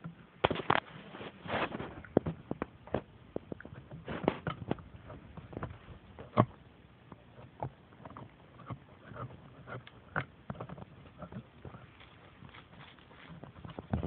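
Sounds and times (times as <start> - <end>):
puppies chewing on a chair: 0.0 - 14.0.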